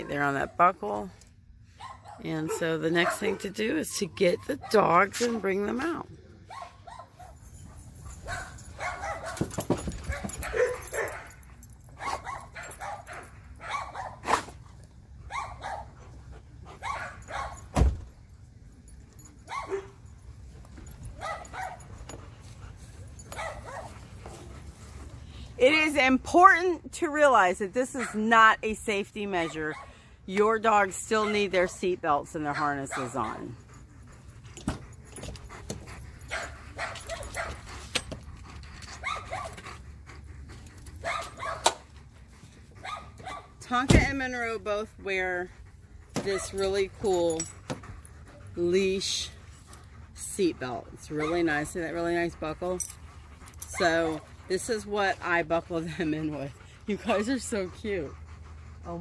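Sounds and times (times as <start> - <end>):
dogs panting: 0.0 - 59.0
dogs barking: 1.8 - 3.5, 8.1 - 14.4, 15.3 - 16.0, 16.7 - 17.7, 19.5 - 20.0, 21.1 - 21.9, 23.3 - 24.0, 28.0 - 28.2, 32.5 - 33.6, 36.2 - 37.6, 39.0 - 39.6, 41.0 - 41.8, 42.8 - 43.6
dogs whining and whimpering: 32.6 - 59.0.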